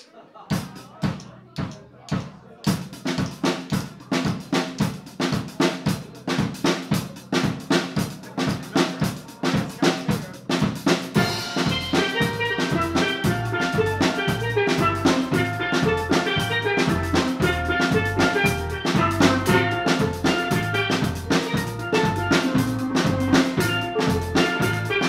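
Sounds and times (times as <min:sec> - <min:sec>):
drum kit groove: 0:00.5 - 0:25.0
steel pans: 0:11.1 - 0:25.0
bass guitar: 0:11.2 - 0:25.0.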